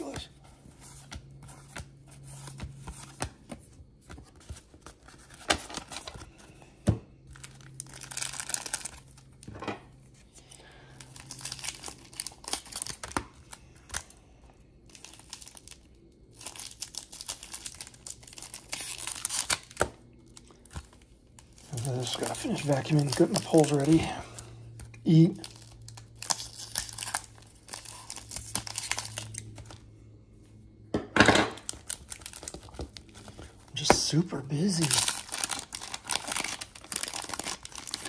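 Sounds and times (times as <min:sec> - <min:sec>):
paper wrapper tearing and crinkling: 0:04.4 - 0:06.3, 0:07.3 - 0:09.5, 0:11.0 - 0:14.1, 0:14.9 - 0:24.4, 0:25.1 - 0:29.8, 0:31.6 - 0:38.0.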